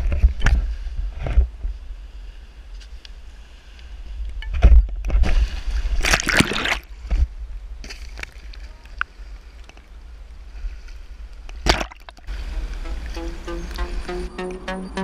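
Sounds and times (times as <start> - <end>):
water splashing: 5.2 - 7.1, 7.8 - 10.0, 11.5 - 13.7.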